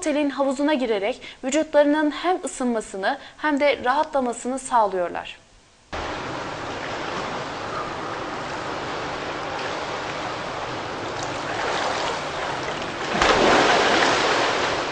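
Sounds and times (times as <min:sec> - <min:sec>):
water splashing in swimming pool: 0:06.0 - 0:14.9.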